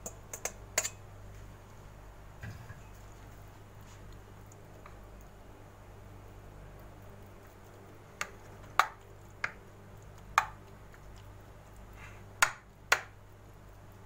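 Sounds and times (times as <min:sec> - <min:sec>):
metal spoon clinking on baking tray: 0:00.0 - 0:01.0.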